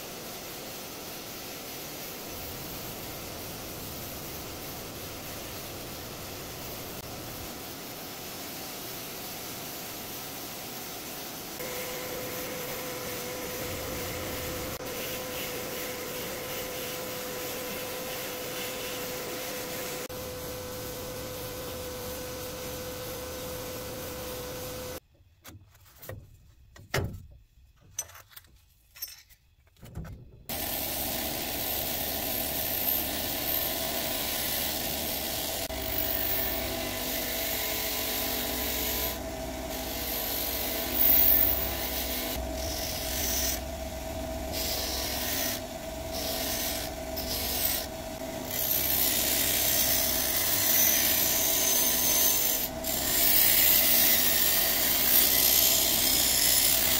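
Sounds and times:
sandblast cabinet hissing: 0.0 - 25.0, 30.5 - 56.9
wire wheel grinder humming: 11.6 - 25.0, 30.5 - 56.9
metal scrubbed on wire wheel: 30.6 - 56.9.

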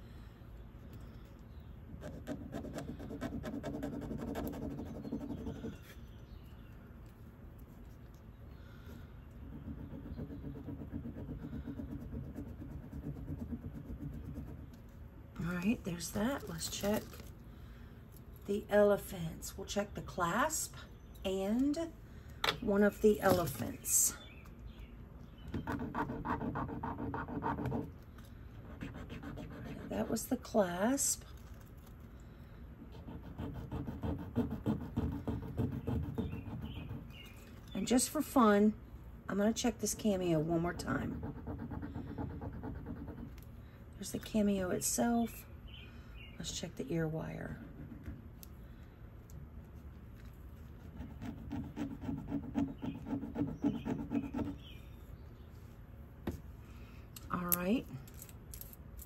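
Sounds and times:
jewelry scratching on stone: 2.0 - 6.0, 9.4 - 14.9, 28.6 - 30.4, 40.6 - 43.4, 50.2 - 54.7, 58.1 - 59.0.

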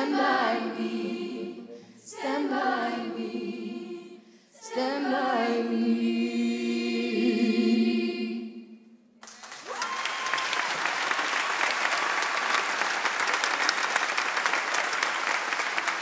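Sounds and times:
choir singing held chord: 0.0 - 8.8
audience applause: 9.2 - 16.0.

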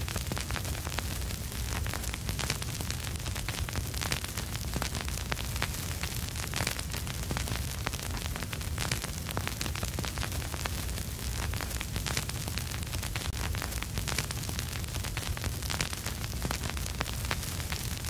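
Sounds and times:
steady hiss: 0.0 - 18.0
vinyl crackles and pops: 0.0 - 18.0.

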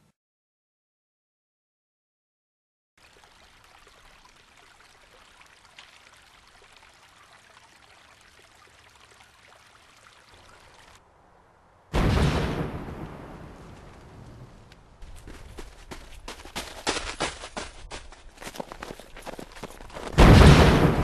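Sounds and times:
light crackles: 3.0 - 16.2.

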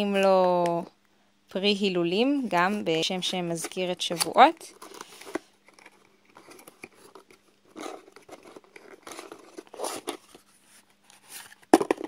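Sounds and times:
cardboard box rustling and scraping: 4.8 - 11.7.

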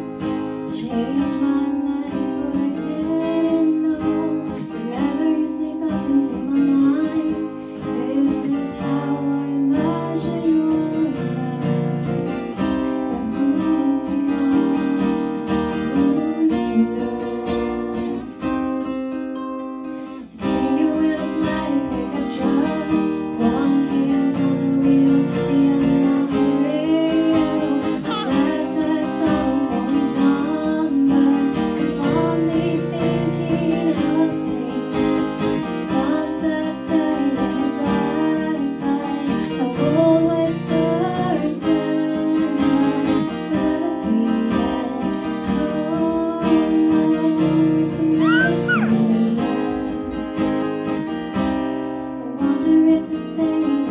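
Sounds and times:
acoustic guitars strumming: 0.0 - 53.9
woman singing: 0.6 - 18.6, 20.2 - 50.3, 52.2 - 53.9.

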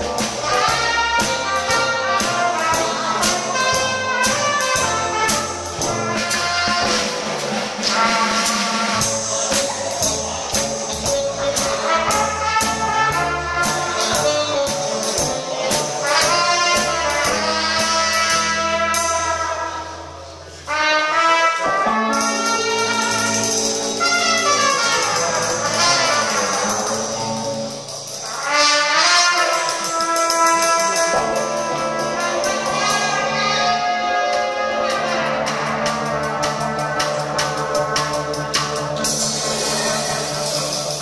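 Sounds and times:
steady drum beat: 0.0 - 20.0, 20.6 - 41.0
brass section playing: 0.0 - 41.0.

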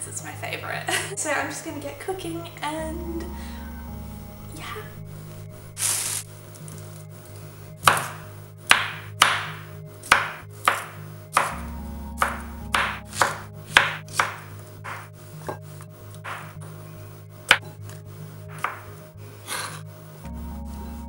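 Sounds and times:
soft background music: 0.0 - 21.0
cleaver chopping on plastic board: 7.8 - 11.6, 12.2 - 15.6, 16.2 - 16.6, 18.5 - 18.9.

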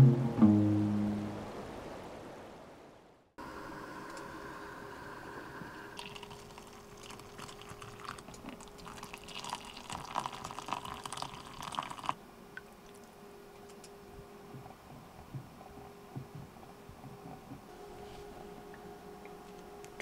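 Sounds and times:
steady low hum: 0.0 - 2.4, 12.0 - 20.0
coffee pouring into cups: 4.1 - 12.2.

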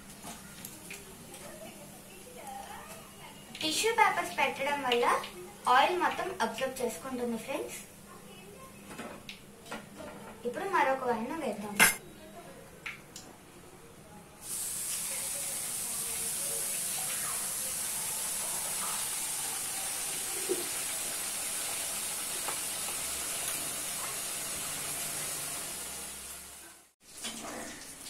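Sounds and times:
chicken sizzling in hot oil: 14.4 - 28.0.

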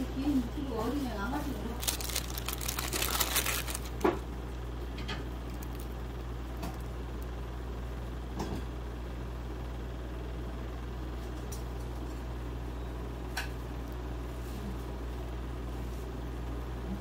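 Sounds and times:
machinery hum: 0.0 - 11.2.

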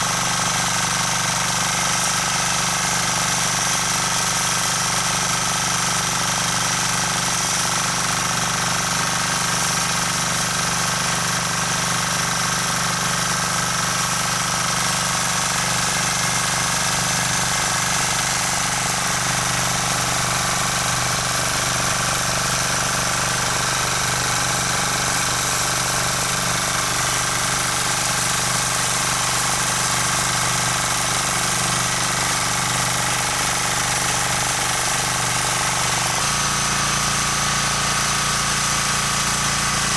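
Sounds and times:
tiller engine running: 0.0 - 39.9
tines churning soil: 0.0 - 39.9.

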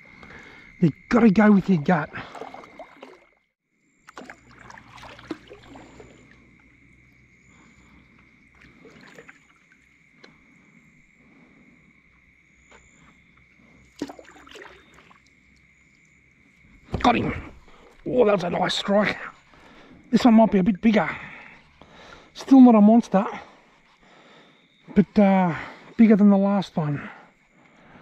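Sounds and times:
water lapping at hull: 1.4 - 11.8, 12.7 - 22.4
small splashes and knocks: 1.9 - 6.6, 8.5 - 10.4, 13.8 - 15.6.

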